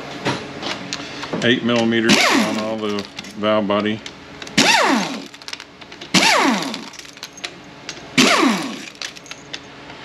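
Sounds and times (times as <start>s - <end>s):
power ratchet whirring: 2.0s - 3.2s, 4.4s - 7.5s, 8.1s - 9.5s.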